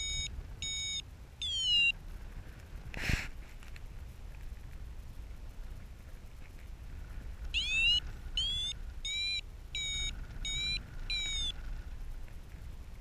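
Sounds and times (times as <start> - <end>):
variometer beeping: 0.0 - 2.0, 7.5 - 11.6
low wind rumble: 0.0 - 13.0.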